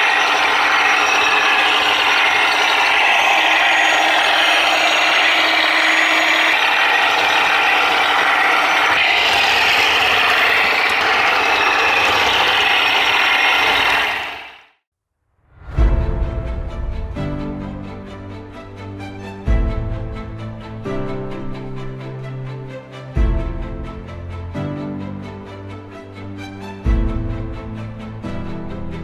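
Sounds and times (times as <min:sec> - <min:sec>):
toy tank whirring clatter: 0:00.0 - 0:14.6.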